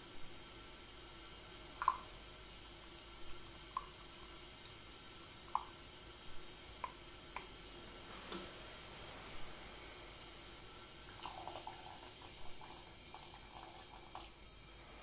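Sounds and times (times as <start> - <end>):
kettle simmering hiss: 0.0 - 15.0
water drops plinking into bowl: 1.8 - 2.1.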